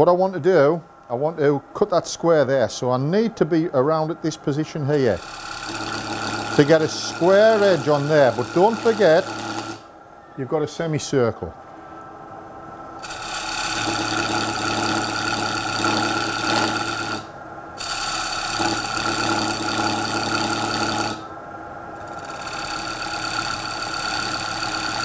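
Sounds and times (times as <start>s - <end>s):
lathe gouge cutting wood: 4.9s - 9.8s, 13.0s - 21.3s, 22.0s - 25.0s.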